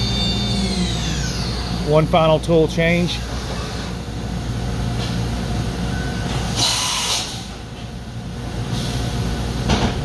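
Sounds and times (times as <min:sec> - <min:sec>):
machine hum: 0:00.0 - 0:06.7
air hiss: 0:06.6 - 0:07.5.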